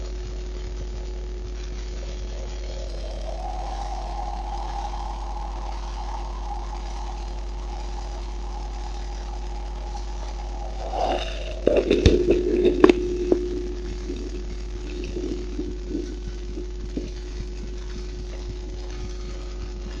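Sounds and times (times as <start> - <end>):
steady low hum: 0.0 - 20.0
microphone handling rubbing: 10.1 - 18.7.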